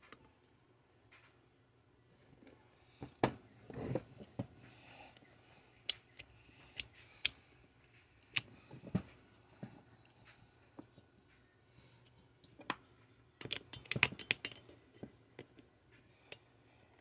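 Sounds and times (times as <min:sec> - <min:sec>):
metal parts clicking and knocking: 0:13.4 - 0:15.7.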